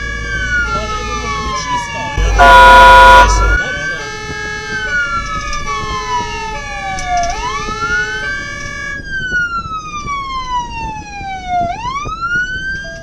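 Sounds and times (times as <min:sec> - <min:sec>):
road and engine rumble: 0:00.0 - 0:13.0
wail siren: 0:00.0 - 0:13.0
two-tone horn: 0:02.2 - 0:03.6.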